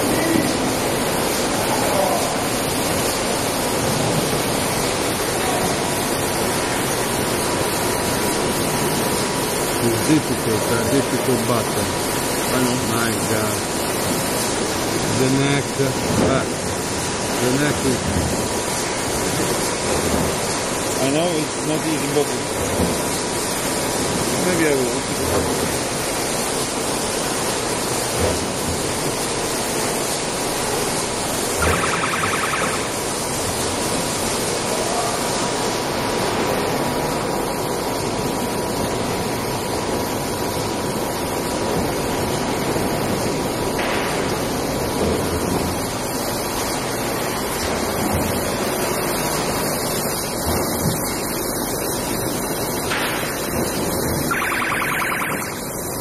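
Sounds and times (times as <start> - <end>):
bottling machine noise: 0.0 - 56.0
faint high whine: 31.6 - 33.2, 54.2 - 56.0.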